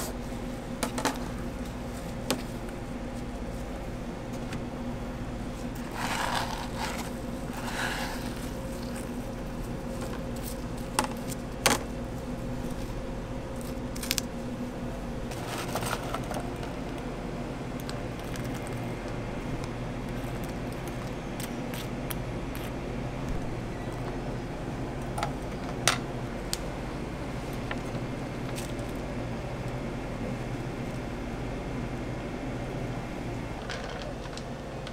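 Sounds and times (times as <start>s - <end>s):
machine hum: 0.0s - 34.9s
fruit scraping on cutting board: 5.8s - 9.0s.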